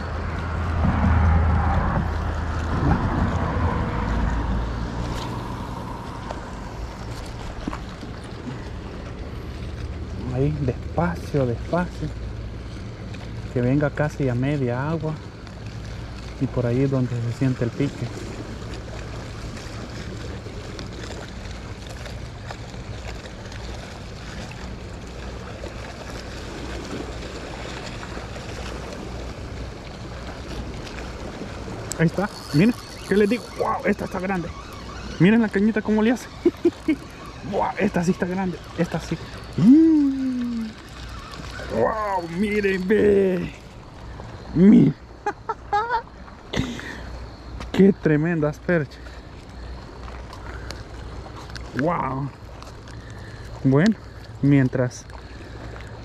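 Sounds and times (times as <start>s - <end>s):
wind buffeting microphone: 0.0s - 8.6s
low hum: 0.0s - 47.2s
choppy water: 0.0s - 56.0s
steady wind: 0.0s - 56.0s
spinning reel turning: 32.0s - 39.7s.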